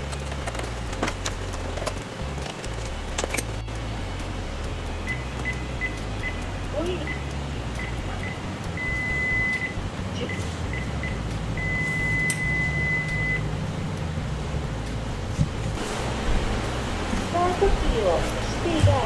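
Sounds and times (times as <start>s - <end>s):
electronic beeps: 7.0s - 13.5s.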